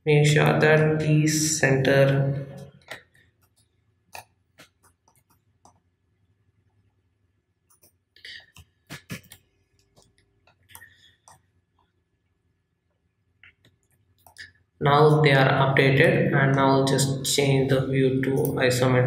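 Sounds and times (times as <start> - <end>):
computer mouse clicks: 2.9 - 5.9, 7.7 - 11.4, 13.5 - 14.6.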